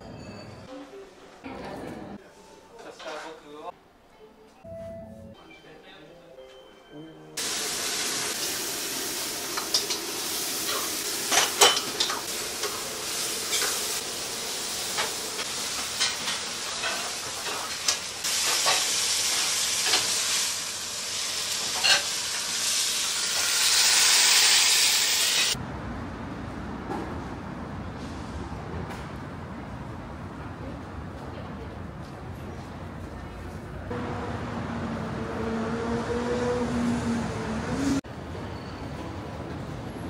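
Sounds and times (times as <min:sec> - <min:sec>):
food sizzling in a wok: 0:07.4 - 0:25.6
metal clanking on wok: 0:09.6 - 0:12.8
street hum: 0:25.2 - 0:40.0.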